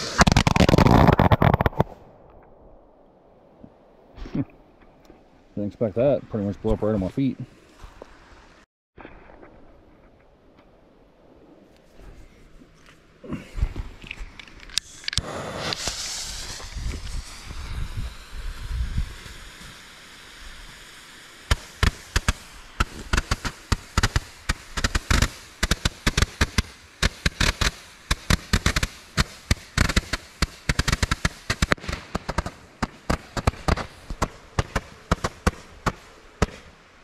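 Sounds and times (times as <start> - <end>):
fireworks cracking and popping: 0.0 - 2.5, 14.1 - 36.8.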